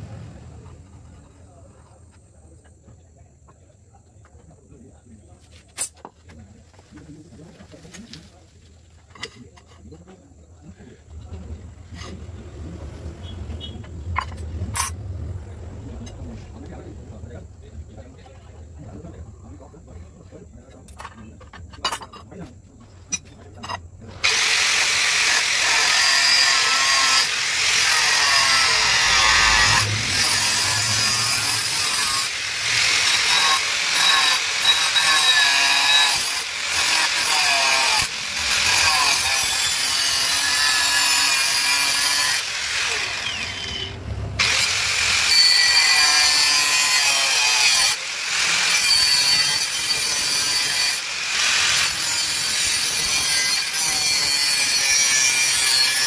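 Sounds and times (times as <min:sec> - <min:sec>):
angle grinder cutting metal: 0:24.2 - 0:56.0.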